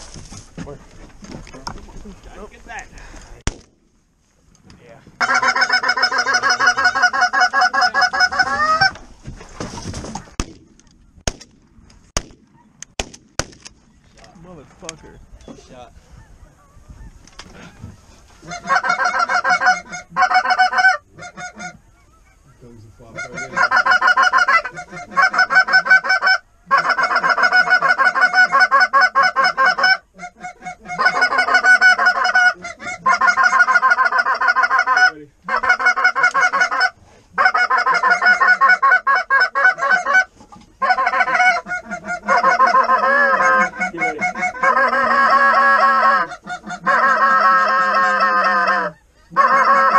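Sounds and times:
goose honking and clucking: 5.2s - 9.0s, 16.2s - 49.9s.

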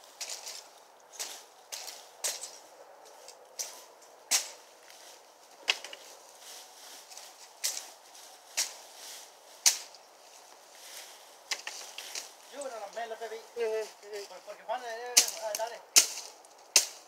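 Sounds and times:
machete whacking brush: 3.6s - 4.7s, 7.1s - 7.9s, 8.5s - 9.0s, 9.6s - 10.0s, 11.5s - 12.4s, 15.1s - 17.0s.

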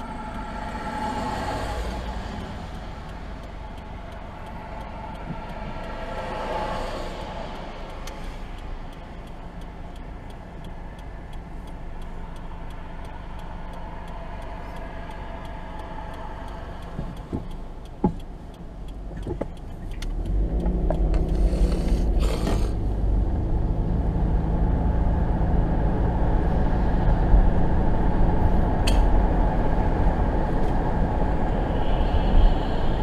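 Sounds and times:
steady ticking: 0.0s - 23.4s
car engine idling: 0.0s - 23.8s
passing traffic: 0.0s - 33.0s.

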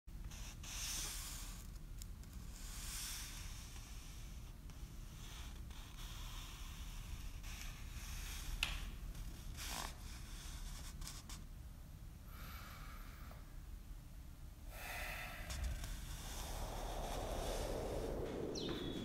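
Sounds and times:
low room hum: 8.9s - 19.0s
short breaths: 12.3s - 13.6s, 14.6s - 16.4s.

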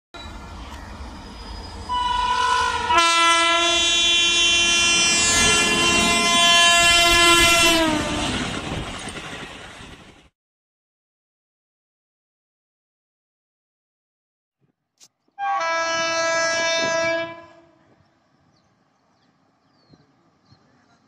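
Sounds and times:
train rumble: 0.2s - 10.3s, 15.6s - 21.0s
train horn: 1.9s - 8.5s, 15.4s - 17.9s.

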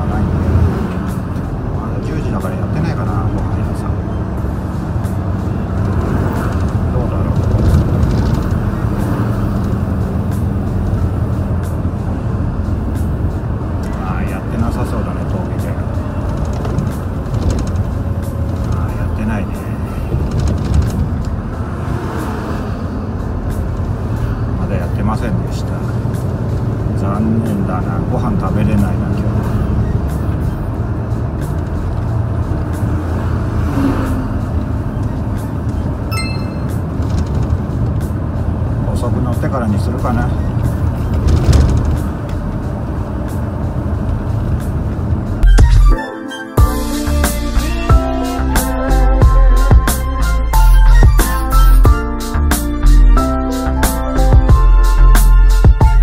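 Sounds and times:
truck diesel engine droning: 0.0s - 46.0s, 46.6s - 56.0s
tyre and road noise: 0.0s - 46.0s
truck diesel engine running: 3.2s - 24.6s.

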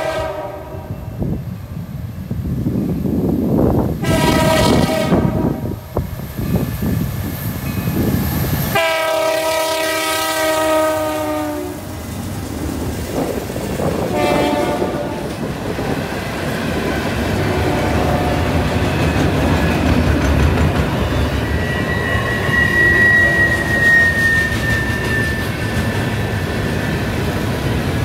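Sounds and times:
locomotive air horn blasts: 0.0s - 1.2s, 4.0s - 5.9s, 8.7s - 12.0s, 14.1s - 15.4s, 17.5s - 18.6s
freight cars rumbling and clattering: 18.3s - 21.6s
high wheel squeal: 20.9s - 27.0s.

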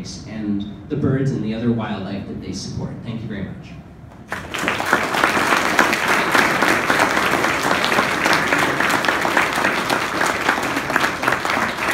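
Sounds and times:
audience applauding: 4.3s - 11.9s.

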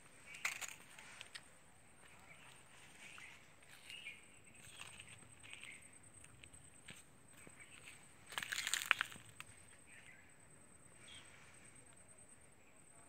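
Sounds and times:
faint bird chirps: 2.0s - 13.0s
faint high whine: 9.3s - 13.0s.

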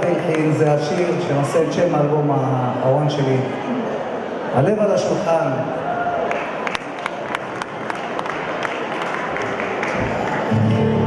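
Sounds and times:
audience applauding: 0.0s - 1.7s, 6.2s - 11.0s
individual claps: 6.3s - 10.8s.

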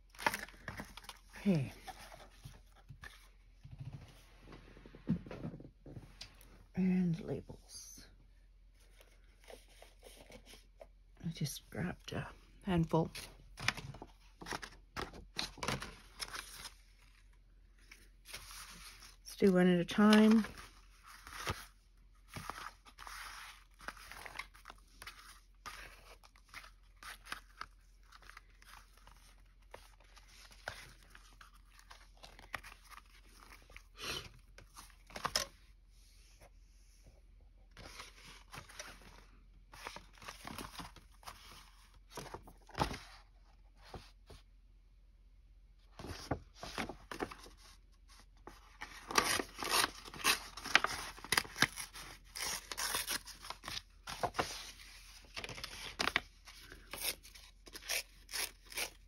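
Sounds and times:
paper rustling and crinkling: 0.0s - 4.2s, 13.1s - 19.3s, 19.9s - 35.7s, 37.8s - 44.4s, 45.9s - 59.0s.

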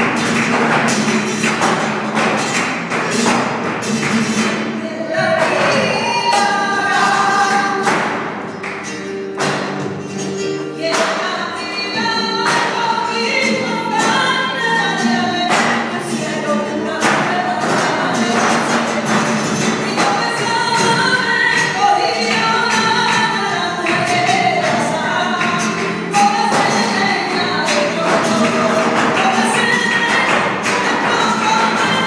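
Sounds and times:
guitar: 0.0s - 32.0s
person singing flamenco: 0.0s - 32.0s.

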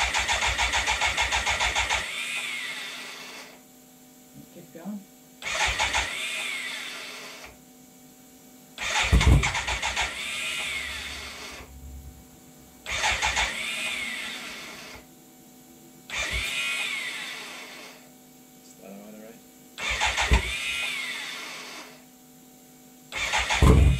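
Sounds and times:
starter motor cranking engine: 0.0s - 3.6s, 5.4s - 7.5s, 8.8s - 11.7s, 12.8s - 15.0s, 16.1s - 18.0s, 19.8s - 22.0s, 23.1s - 23.9s.

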